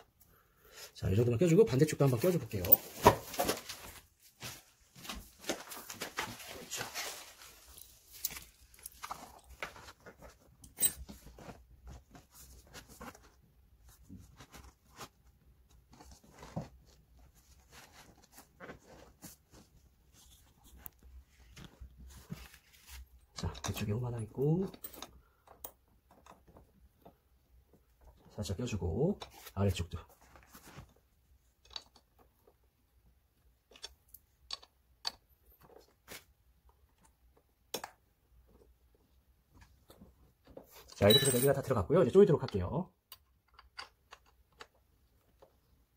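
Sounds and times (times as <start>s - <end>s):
hands handling plastic and metal parts: 2.1s - 27.2s, 33.6s - 41.7s.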